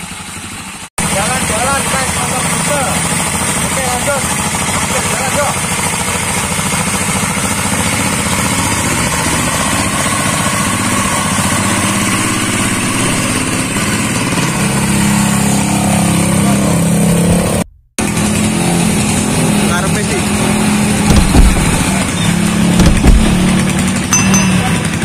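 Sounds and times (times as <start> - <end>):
diesel motorcycle engine chugging: 0.0 - 17.0, 18.0 - 25.0
steady engine hum: 0.0 - 25.0.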